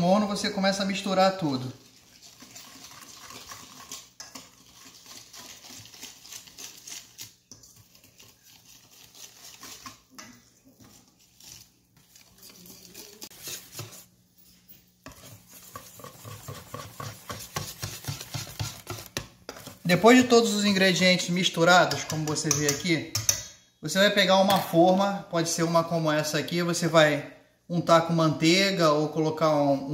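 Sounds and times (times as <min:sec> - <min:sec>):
whisk clicking and scraping bowl: 0:00.0 - 0:14.2, 0:15.0 - 0:23.6.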